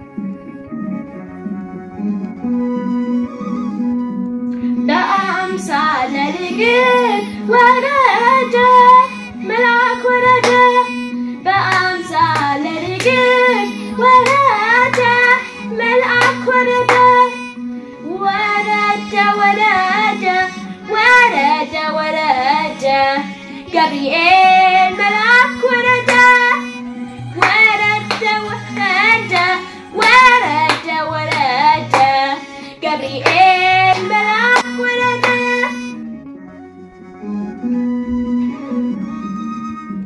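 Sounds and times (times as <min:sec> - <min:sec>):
sustained instrumental notes: 0:00.0 - 0:40.0
boy singing a hymn: 0:27.4 - 0:35.9.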